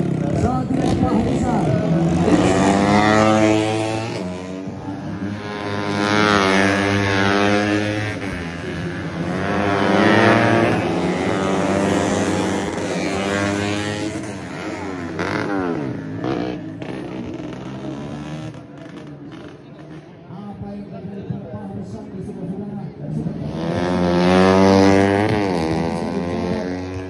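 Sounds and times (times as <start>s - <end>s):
motorcycles passing at high revs: 0.0s - 20.6s, 21.7s - 27.0s.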